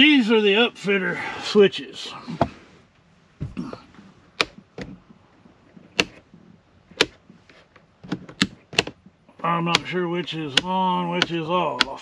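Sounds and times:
rocker switches clicking: 5.9 - 6.2, 6.9 - 7.2, 8.2 - 12.0.

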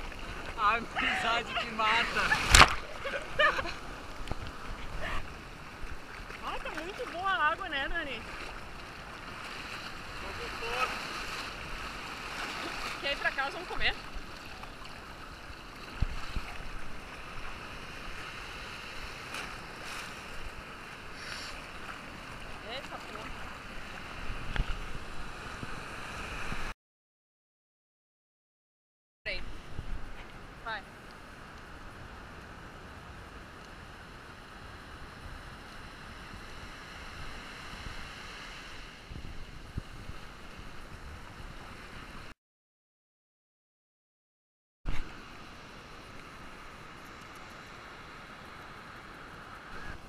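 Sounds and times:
sea surf washing and foaming: 0.0 - 26.7, 29.3 - 42.3
wind noise: 15.9 - 20.6, 34.6 - 42.3.

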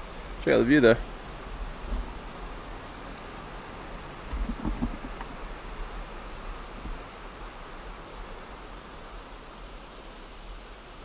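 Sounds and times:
insect chirping: 0.0 - 10.8
wind rumble on microphone: 0.9 - 7.6
low thumps: 4.3 - 5.3.

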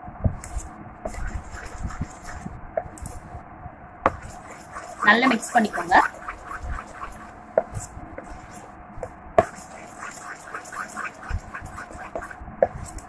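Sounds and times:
batter squelching: 1.1 - 2.5, 4.1 - 8.6, 9.4 - 12.4.

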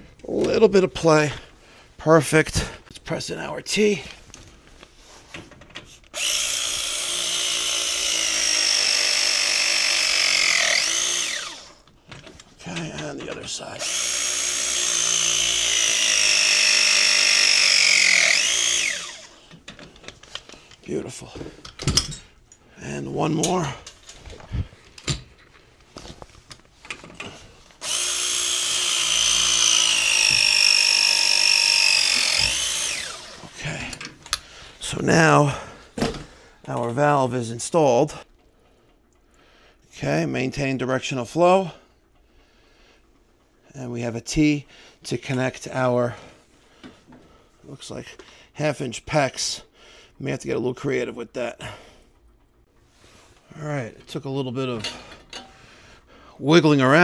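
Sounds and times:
press tool motor whine: 6.2 - 11.8, 13.8 - 19.4, 27.8 - 33.6.

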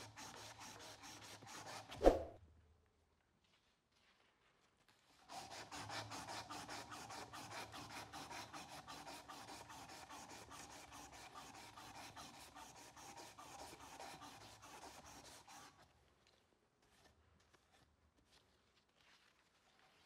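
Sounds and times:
sandpaper scratching on wood: 0.0 - 2.2, 5.3 - 15.8.

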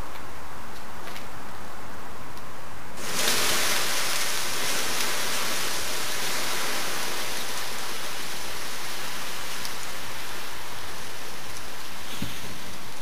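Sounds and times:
hiss of flames doused: 3.0 - 13.0
rush of water: 3.0 - 13.0.

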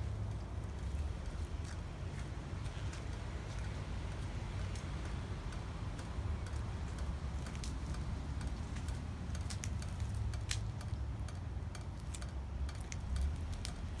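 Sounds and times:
steady low rumble: 0.0 - 14.0
sharp ticks and clicks: 2.9 - 14.0.

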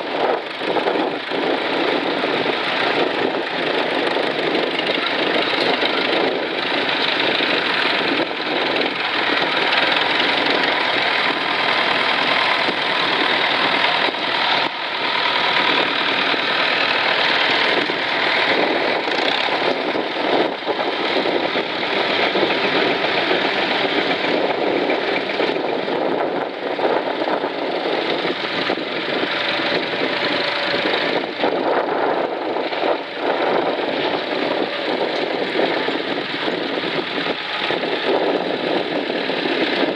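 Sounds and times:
tractor engines running: 0.0 - 39.9.

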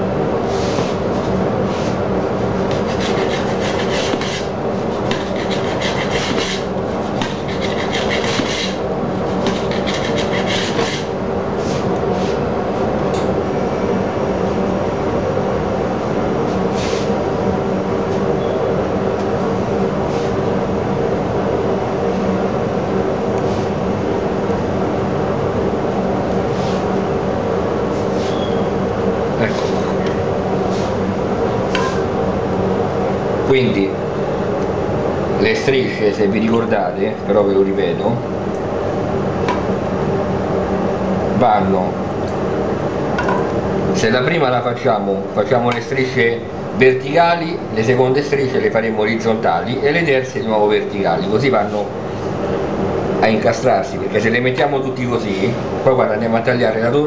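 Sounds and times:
steady motor hum: 0.0 - 57.0
rustling and scraping strokes: 0.5 - 12.4, 16.5 - 17.2, 26.5 - 26.9, 29.5 - 30.0, 30.6 - 31.0.

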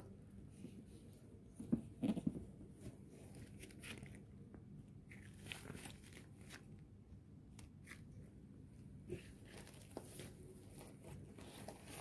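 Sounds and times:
gloved hands rustling packaging: 5.1 - 6.8, 9.3 - 12.0.

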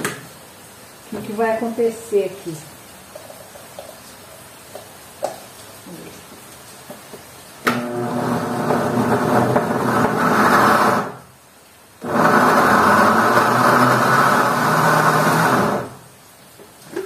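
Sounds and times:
blender running: 7.6 - 11.3, 12.0 - 16.0.

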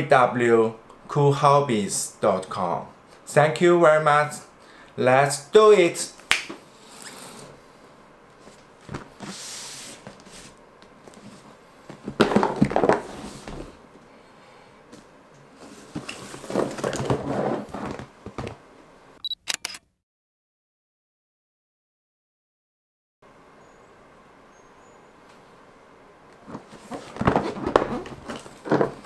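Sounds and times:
cardboard scraping and knocks: 11.2 - 13.8, 15.6 - 18.6, 26.5 - 29.0
sharp clicks: 19.2 - 19.9.

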